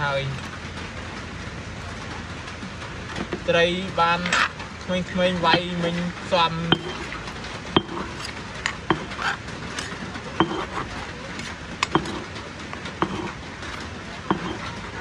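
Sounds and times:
utensils knocking and clinking: 0:04.2 - 0:15.0.

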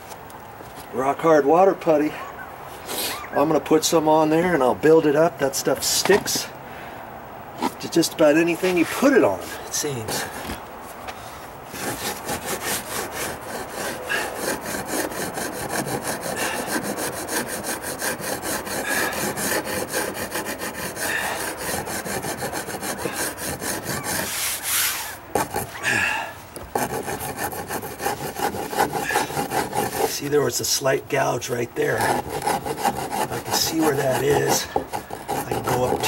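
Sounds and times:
hand rasp filing wood: 0:11.7 - 0:30.8, 0:31.8 - 0:36.0.

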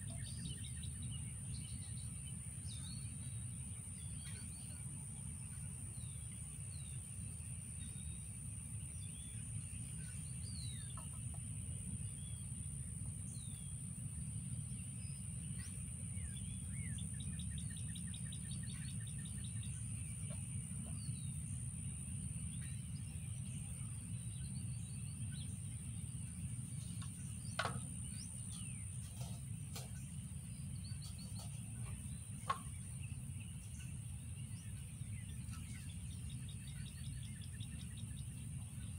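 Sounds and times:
birds chirping and calling: 0:22.5 - 0:38.9
sharp knocks: 0:27.5 - 0:28.0.

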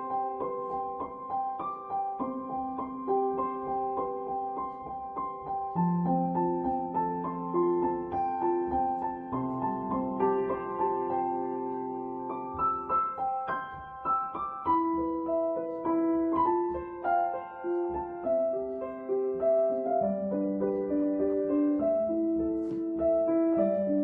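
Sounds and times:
gentle piano music: 0:00.0 - 0:24.0.

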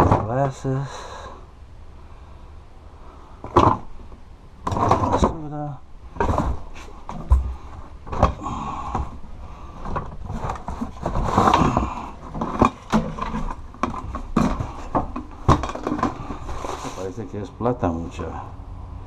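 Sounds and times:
objects knocking and clattering: 0:00.0 - 0:00.6, 0:03.4 - 0:03.9, 0:04.6 - 0:05.4, 0:06.1 - 0:09.2, 0:09.8 - 0:17.0
paper and cardboard rustling: 0:09.0 - 0:17.3.

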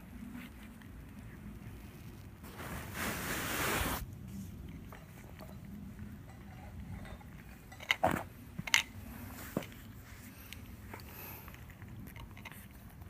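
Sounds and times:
brief hiss of noise: 0:02.5 - 0:04.0
cat chewing food: 0:08.4 - 0:13.0.

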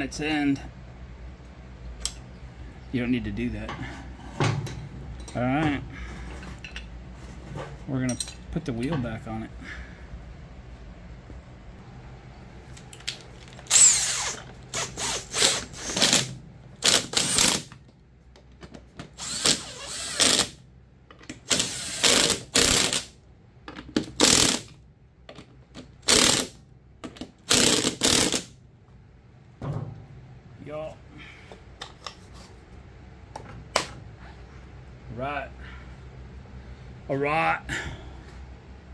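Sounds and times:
impact wrench bursts: 0:13.6 - 0:17.7, 0:19.1 - 0:20.6, 0:21.4 - 0:23.2, 0:24.1 - 0:24.7, 0:26.0 - 0:26.6, 0:27.4 - 0:28.6.

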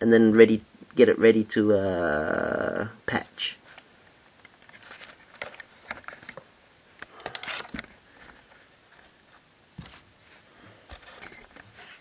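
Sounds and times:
soft rustling: 0:03.6 - 0:06.6, 0:07.5 - 0:12.0.

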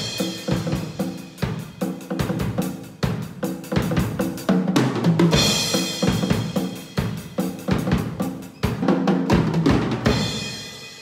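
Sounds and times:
drum kit playing fast: 0:00.0 - 0:11.0
cymbal crash ringing: 0:10.1 - 0:11.0.

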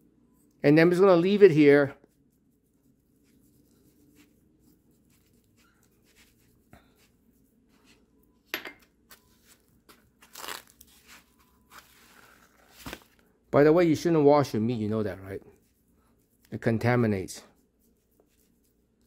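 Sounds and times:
plastic wrap crinkling: 0:09.8 - 0:13.3.

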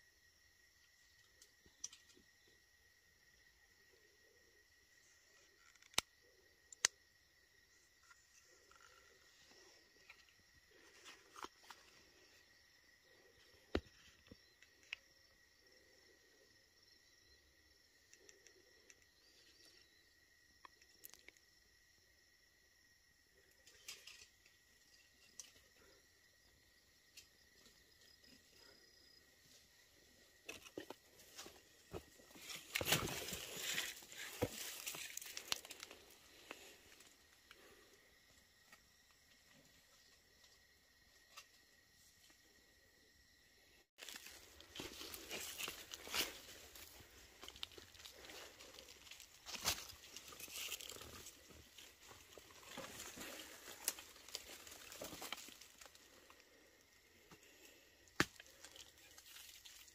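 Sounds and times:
crickets chirping: 0:00.0 - 0:59.9
twigs snapping: 0:32.4 - 0:36.1
dry brush rustling underfoot: 0:44.0 - 0:55.8.

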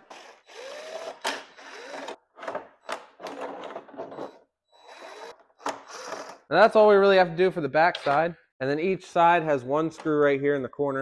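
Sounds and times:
impact driver whirring: 0:00.0 - 0:02.2.

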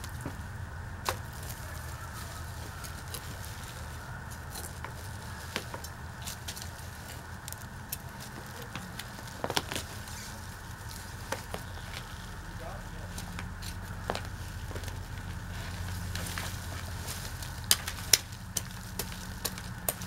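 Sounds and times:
plant stalks rustling: 0:00.0 - 0:20.0.

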